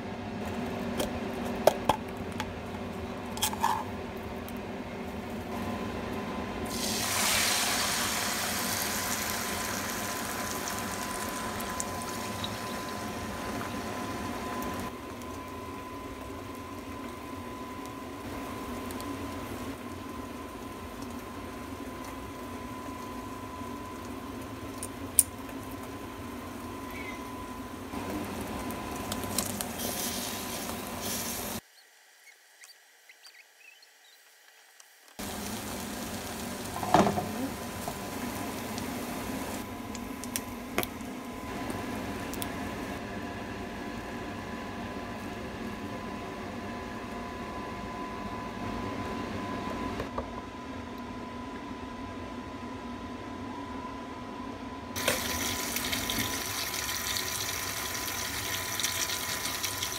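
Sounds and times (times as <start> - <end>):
bread frying in a pan: 6.4 - 26.9, 27.8 - 32.6, 34.2 - 40.6, 55.0 - 59.9.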